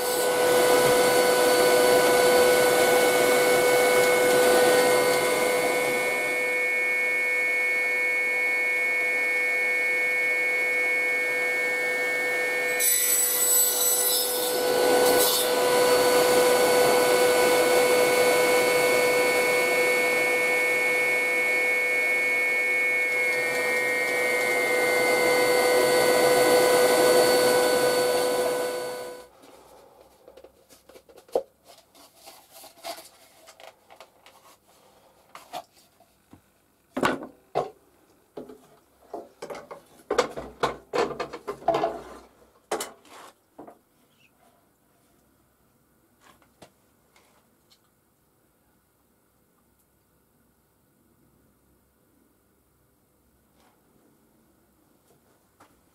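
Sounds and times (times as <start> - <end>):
shop vac motor whine: 0.0 - 29.3.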